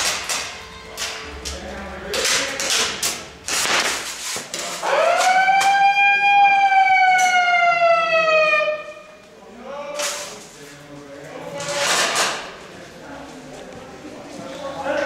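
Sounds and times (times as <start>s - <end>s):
siren-like signal tone: 4.8s - 9.2s.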